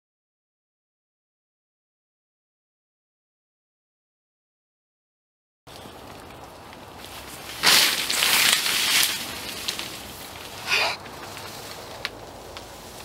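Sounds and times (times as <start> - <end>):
rustling crackling noise: 5.7 - 13.0.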